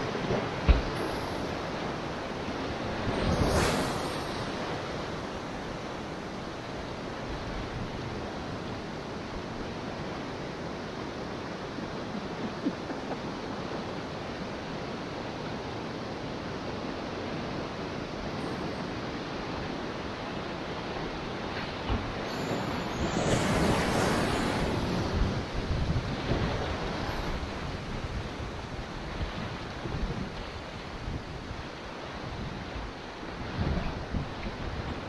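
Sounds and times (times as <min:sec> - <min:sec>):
wind on microphone: 0:00.0 - 0:10.1, 0:18.2 - 0:35.0
river water rushing: 0:00.0 - 0:35.0.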